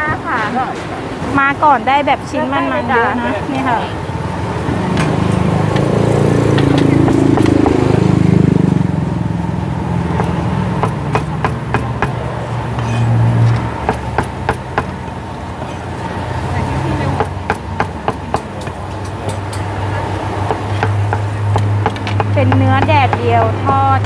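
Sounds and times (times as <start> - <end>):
low engine rumble: 0.0 - 24.0
cleaver chopping on wooden block: 10.2 - 12.2, 17.2 - 19.6, 20.4 - 24.0.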